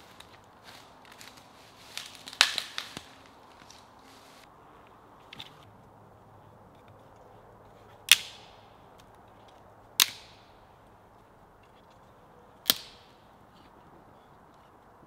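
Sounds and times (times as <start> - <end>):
sharp cracks with echo: 2.2 - 3.3, 10.0 - 10.6, 12.7 - 13.2.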